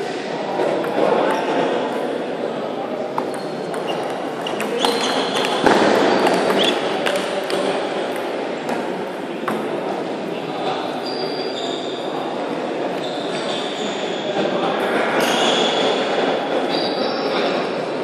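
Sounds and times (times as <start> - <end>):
background murmur of hall: 0.0 - 18.0
table tennis ball clicking: 3.2 - 8.2.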